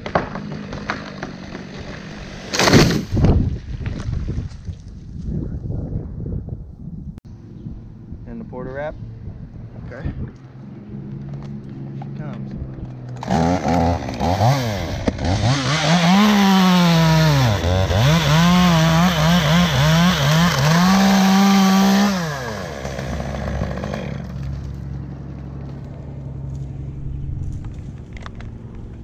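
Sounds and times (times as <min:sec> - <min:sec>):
chainsaw cutting wood: 0:00.0 - 0:03.3, 0:13.1 - 0:24.8.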